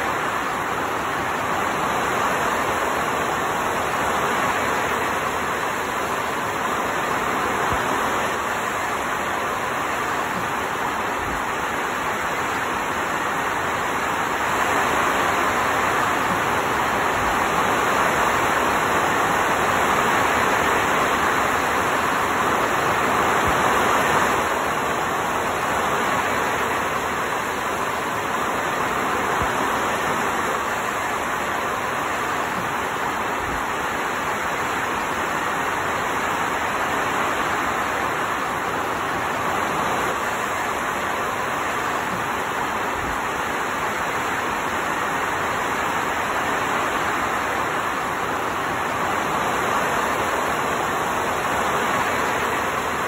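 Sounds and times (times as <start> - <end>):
heavy rain: 0.0 - 53.0.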